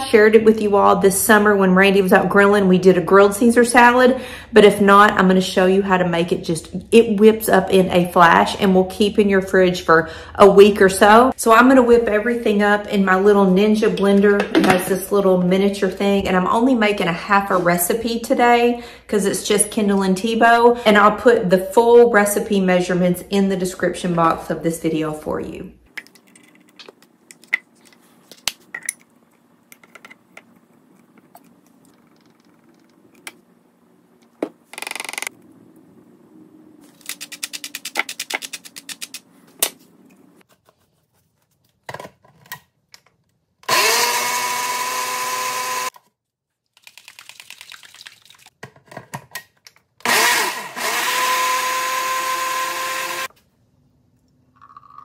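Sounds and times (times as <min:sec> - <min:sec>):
blender motor whining: 0:43.6 - 0:45.9, 0:50.0 - 0:53.3.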